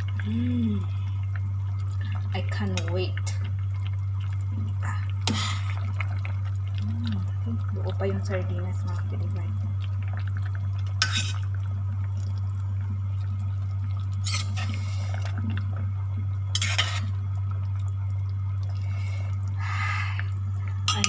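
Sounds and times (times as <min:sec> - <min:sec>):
steady low hum: 0:00.0 - 0:21.0
metal spoon stirring soup in pot: 0:10.9 - 0:11.6, 0:14.2 - 0:15.4, 0:16.6 - 0:17.2
spoon scraping and splashing: 0:11.0 - 0:11.5, 0:14.2 - 0:15.1, 0:16.6 - 0:17.2.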